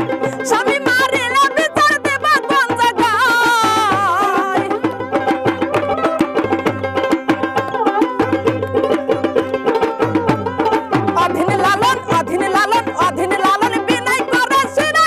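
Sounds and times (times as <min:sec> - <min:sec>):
plucked lute melody: 0:00.0 - 0:15.0
woman singing: 0:00.2 - 0:05.0, 0:11.1 - 0:15.0
steady drum beat: 0:02.9 - 0:14.0
hand claps: 0:04.9 - 0:08.2.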